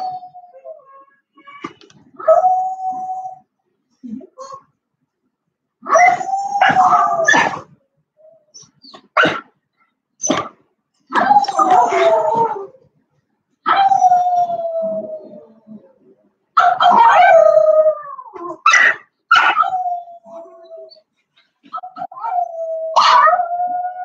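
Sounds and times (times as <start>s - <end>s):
dog howling: 5.9s - 7.6s, 11.2s - 12.8s, 13.7s - 16.0s, 21.8s - 24.0s.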